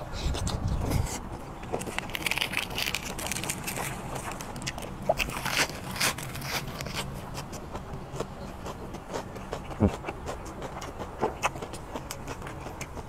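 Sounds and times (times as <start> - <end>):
crunchy chewing of lettuce: 0.0 - 13.0
leaf rustling: 1.8 - 7.1.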